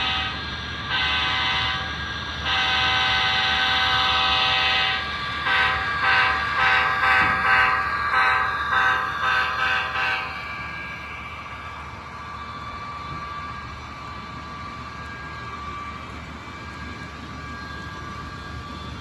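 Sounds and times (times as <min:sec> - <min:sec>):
model train horn blasts: 0:00.0 - 0:10.6
model train running hum: 0:00.0 - 0:19.0.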